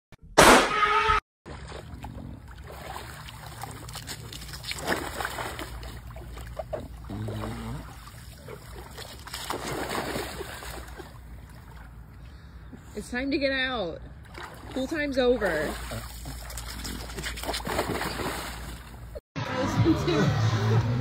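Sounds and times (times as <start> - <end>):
pool water sloshing and splashing: 1.5 - 12.6, 13.6 - 19.2.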